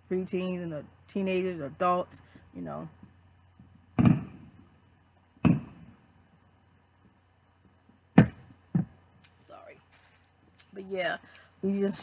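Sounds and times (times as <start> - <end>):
sharp knock: 4.0 - 4.5, 5.4 - 5.9, 8.2 - 9.0
dull thumps of plastic tumbler: 4.0 - 4.6, 5.4 - 5.9, 8.2 - 9.0.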